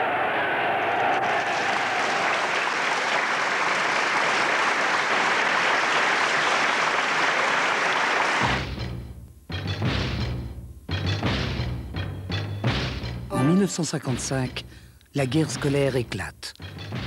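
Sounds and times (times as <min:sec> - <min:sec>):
large crowd applauding: 0:00.0 - 0:08.6.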